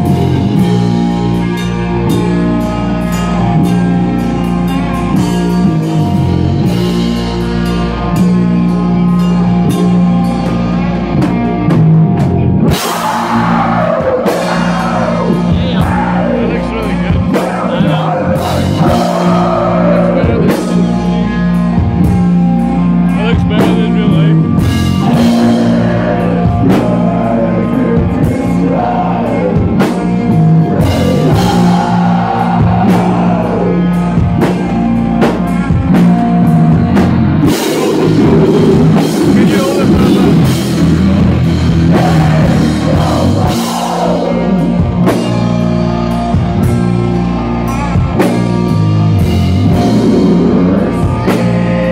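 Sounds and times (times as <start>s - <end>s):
drum kit: 0.0s - 51.9s
electric guitars: 0.0s - 51.9s
vocalist singing: 12.6s - 21.6s, 23.1s - 35.0s, 36.8s - 45.3s, 49.6s - 51.9s.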